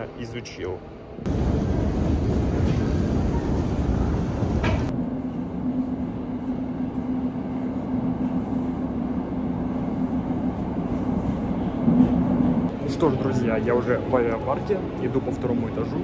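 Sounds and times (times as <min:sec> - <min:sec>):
escalator rumbling: 0:01.3 - 0:05.0
train wheels rumbling: 0:01.3 - 0:05.0.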